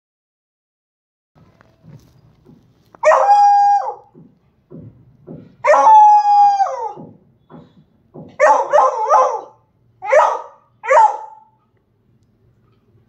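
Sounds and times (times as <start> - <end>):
dog howling: 3.0 - 4.1, 5.6 - 7.2.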